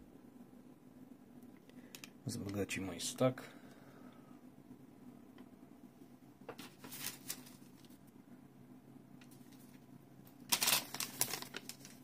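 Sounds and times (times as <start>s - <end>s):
plastic packaging crinkling: 6.6s - 7.9s, 10.4s - 12.0s.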